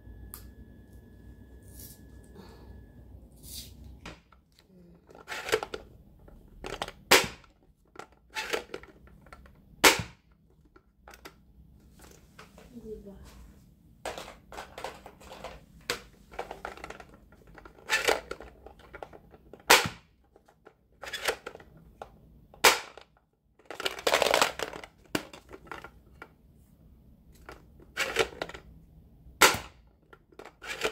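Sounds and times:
plastic rattling and scraping: 4.1 - 12.7, 14.0 - 26.4, 27.3 - 28.7, 29.4 - 30.9.

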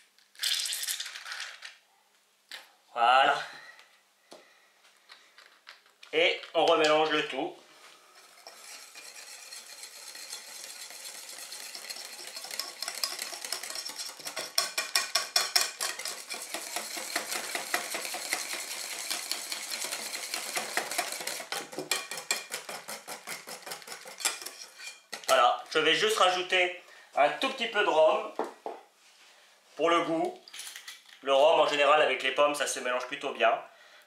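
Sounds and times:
whisk swishing in batter: 8.2 - 24.9.

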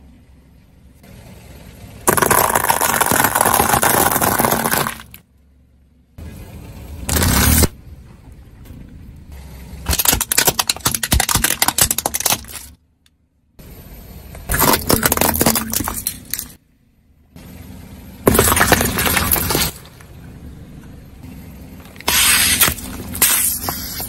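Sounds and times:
car tyre crushing brittle objects: 2.0 - 5.3, 7.1 - 7.8, 9.8 - 12.8, 14.4 - 16.6, 18.2 - 20.2, 21.8 - 24.0.

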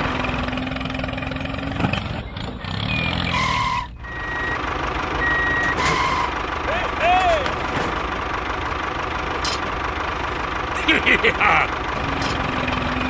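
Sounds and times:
vehicle engine running: 0.0 - 13.0
reversing alarm beeps: 2.9 - 4.6, 5.2 - 6.3.

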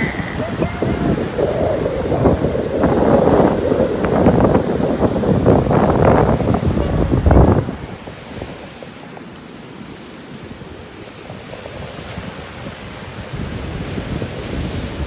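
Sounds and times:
surf washing onto beach: 0.0 - 15.0
wind buffeting microphone: 0.0 - 15.0.

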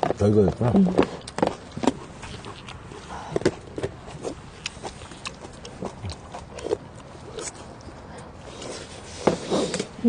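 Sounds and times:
chewing and lip smacks: 1.1 - 8.3.

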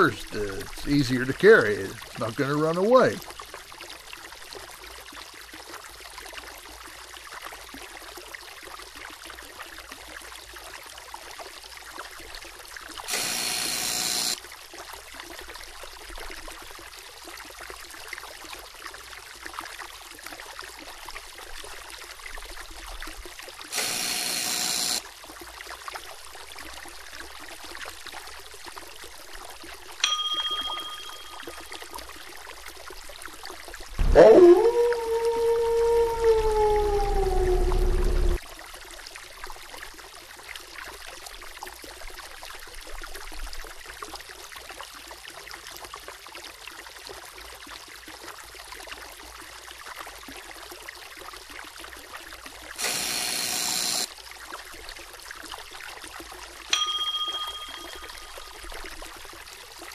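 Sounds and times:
river water trickling: 0.0 - 13.2, 14.3 - 23.8, 25.0 - 37.0, 38.4 - 52.8, 54.1 - 59.9
harsh buzzer blast: 13.1 - 14.4, 23.8 - 25.0, 52.8 - 54.1
bell-like ding: 30.0 - 32.0, 56.8 - 58.6.

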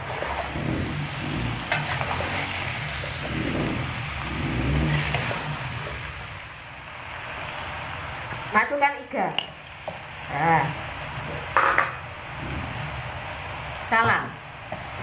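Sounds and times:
spatula scraping in a wok: 0.0 - 6.2
low rumbles: 0.0 - 8.5
frying hiss: 0.0 - 15.0.

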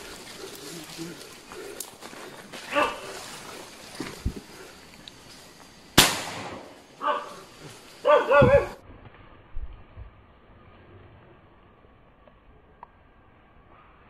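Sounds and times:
gunshot: 6.0 - 6.8.

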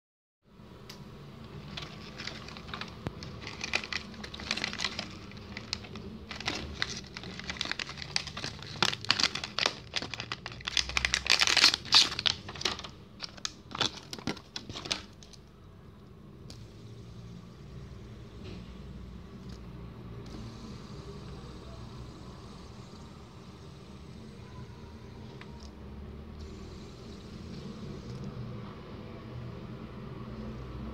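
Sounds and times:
plastic wrapping crinkling: 1.5 - 15.4.

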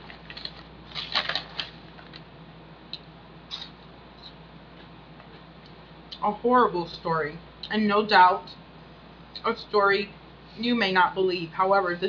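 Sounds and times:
crisps being chewed: 3.5 - 5.8.

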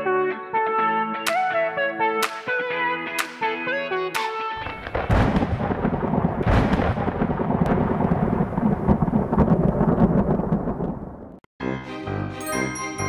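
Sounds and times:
rolling thunder rumble: 4.6 - 11.4
sharp thunder cracks: 4.6 - 11.4.

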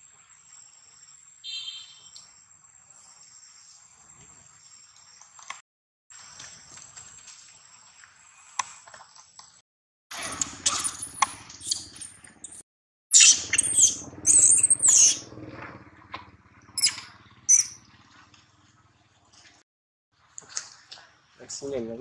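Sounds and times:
macaque squealing screams: 13.1 - 15.2, 16.8 - 17.8.

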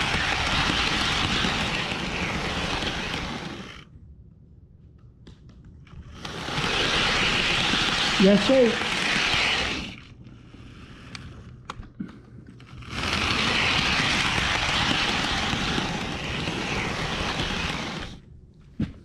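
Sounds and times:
model train whirring: 0.0 - 3.9, 6.0 - 11.5, 12.6 - 18.2.

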